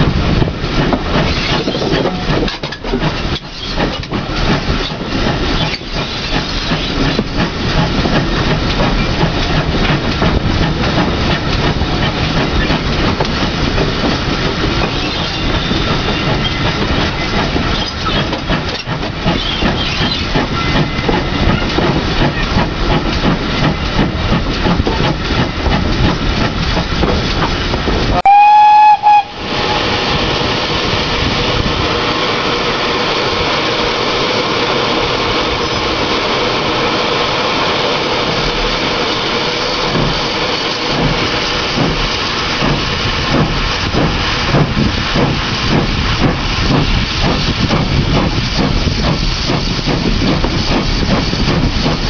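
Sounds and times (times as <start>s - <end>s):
train running: 0.0s - 52.0s
steam locomotive whistle: 28.2s - 30.0s.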